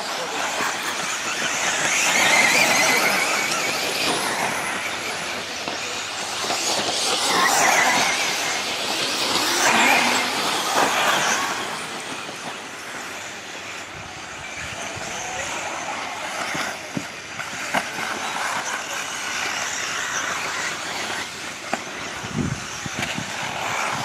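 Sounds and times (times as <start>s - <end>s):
rc car motor whine: 0.0s - 24.0s.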